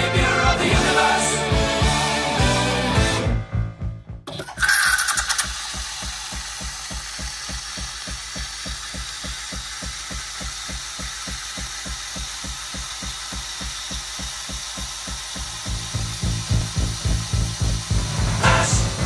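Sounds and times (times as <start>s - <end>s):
espresso machine frothing milk: 4.3s - 19.0s.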